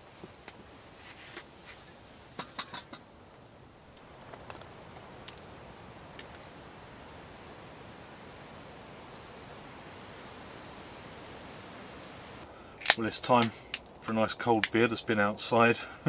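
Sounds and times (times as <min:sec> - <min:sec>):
rain hissing: 0:00.0 - 0:16.0
rain drop ticks: 0:02.9 - 0:09.2, 0:11.8 - 0:15.2.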